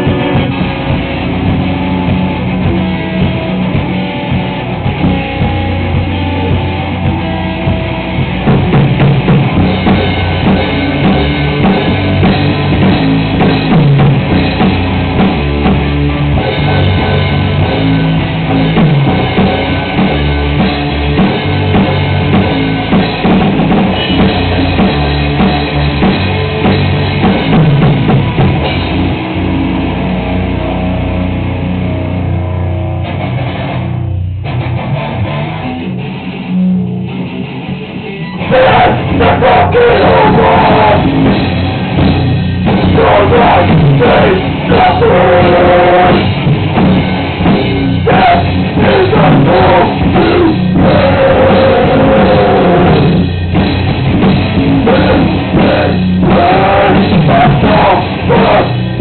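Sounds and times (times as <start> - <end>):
distorted guitars and bass: 0.0 - 59.0
drums: 0.0 - 59.0
screamed vocals: 48.1 - 53.2, 54.8 - 58.8.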